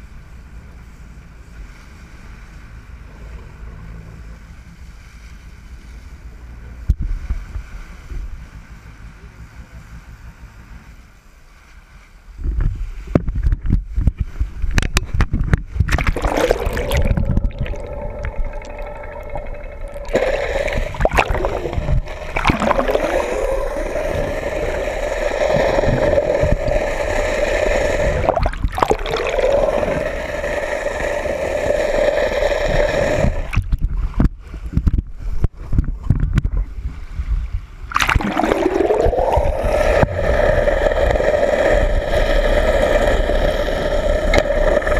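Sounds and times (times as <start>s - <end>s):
water rushing and gurgling: 15.8s - 34.0s, 37.8s - 44.9s
boat engine whine underwater: 15.8s - 34.1s, 37.8s - 44.9s.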